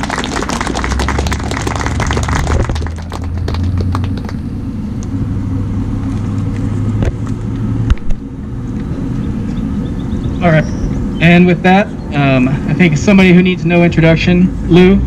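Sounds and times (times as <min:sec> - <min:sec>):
applause: 0:00.0 - 0:04.4
engine rumbling: 0:00.0 - 0:15.0.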